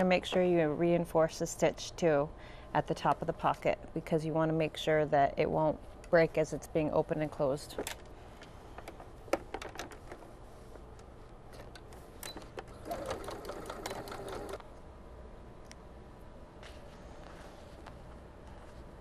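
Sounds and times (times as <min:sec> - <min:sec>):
sewing machine running: 0:12.7 - 0:14.6.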